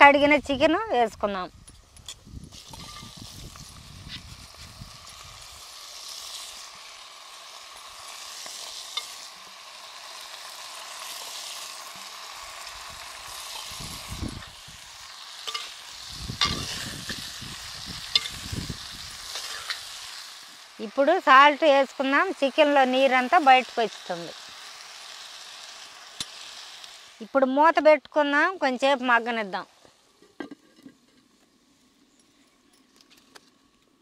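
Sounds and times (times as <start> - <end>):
chicken sizzling in hot oil: 1.3 - 32.1
metal ladle scraping pot: 15.4 - 15.8, 16.4 - 17.0.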